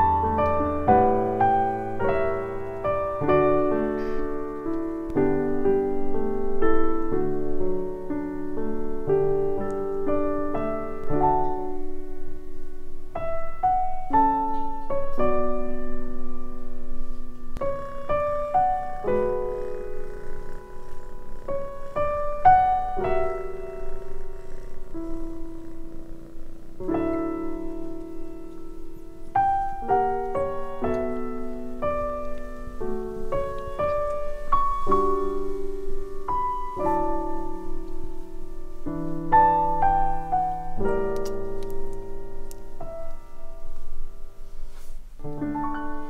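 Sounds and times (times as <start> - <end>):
solo piano melody: 0.0 - 46.0.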